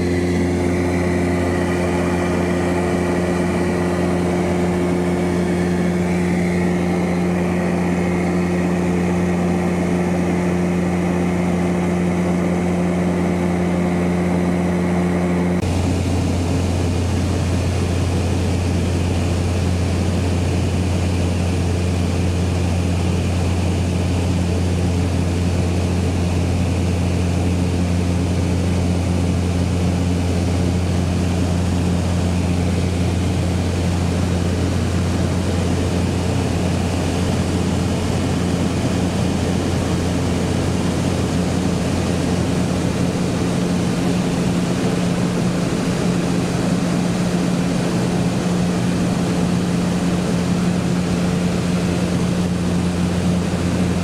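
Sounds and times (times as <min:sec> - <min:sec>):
propeller aircraft engines droning: 0:00.0 - 0:54.0.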